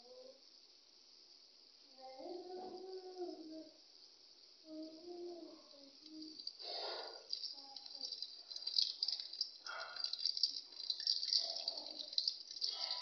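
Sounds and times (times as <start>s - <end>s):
food deep-frying in oil: 5.9s - 13.0s.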